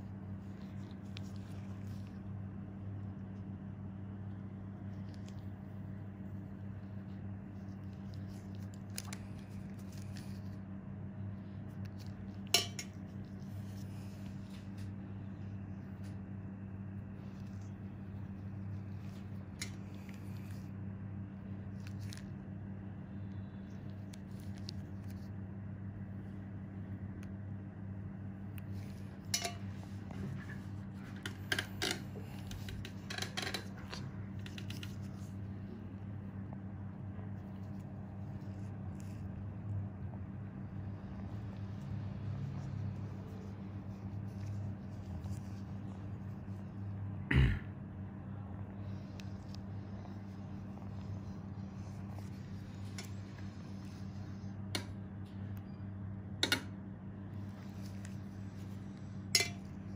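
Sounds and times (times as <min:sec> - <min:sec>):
low electrical hum: 0:00.0 - 0:59.9.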